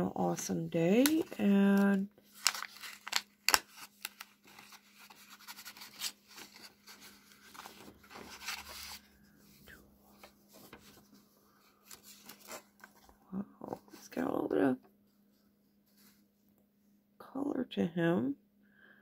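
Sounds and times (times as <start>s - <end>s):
paper wrapper crinkling: 0.4s - 9.2s, 10.1s - 13.2s.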